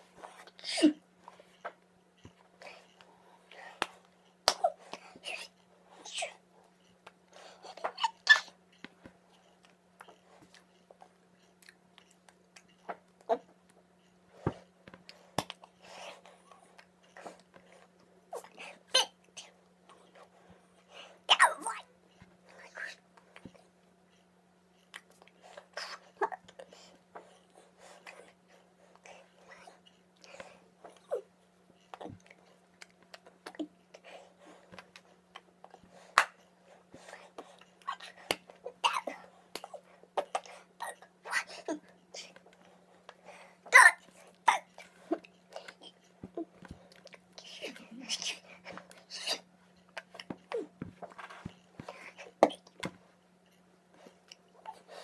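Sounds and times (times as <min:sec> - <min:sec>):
faint low hum: 0:00.0 - 0:55.0
mouth clicks and smacks: 0:15.0 - 0:15.8, 0:24.8 - 0:26.6.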